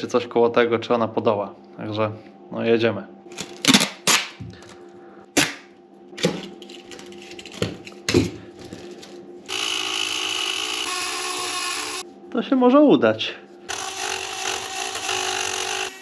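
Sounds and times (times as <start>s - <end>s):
rotary tool running: 9.5s - 12.0s, 13.7s - 16.0s.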